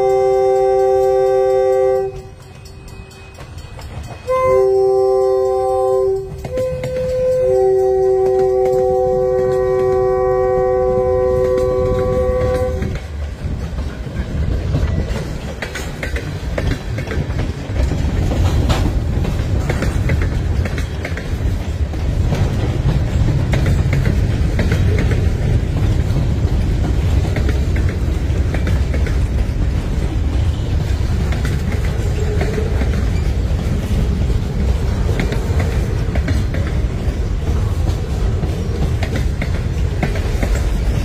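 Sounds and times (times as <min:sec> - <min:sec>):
train horn chord: 0:00.0 - 0:03.5, 0:04.2 - 0:13.1
freight train rumble: 0:00.0 - 0:41.0
wheels clicking over rail joints: 0:00.0 - 0:41.0.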